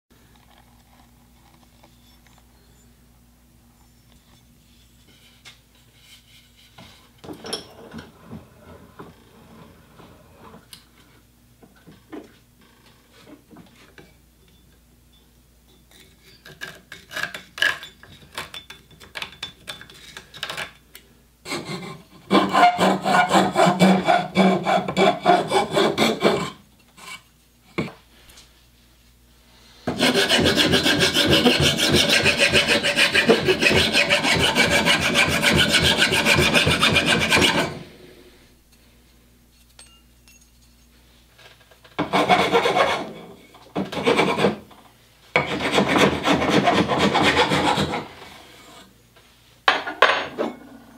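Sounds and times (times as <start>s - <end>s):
file rasping on wood: 21.5s - 27.2s, 29.9s - 37.8s, 42.0s - 43.1s, 43.8s - 44.6s, 45.4s - 48.2s.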